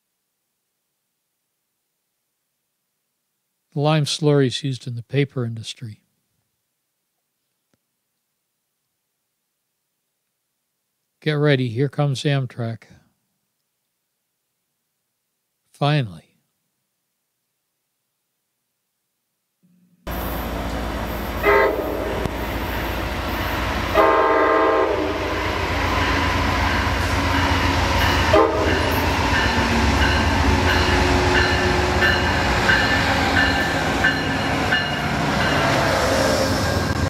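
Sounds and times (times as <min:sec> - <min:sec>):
diesel locomotive engine rumble: 0:20.1 - 0:37.0
train horn: 0:21.4 - 0:22.8, 0:23.8 - 0:32.9.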